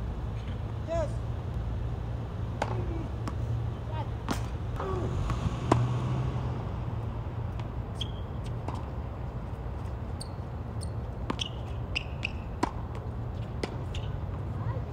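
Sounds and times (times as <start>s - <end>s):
tennis ball hits: 2.6s - 3.6s, 4.2s - 6.5s, 11.2s - 14.4s
shoe squeaks: 7.9s - 8.9s, 10.1s - 12.6s, 13.4s - 14.2s.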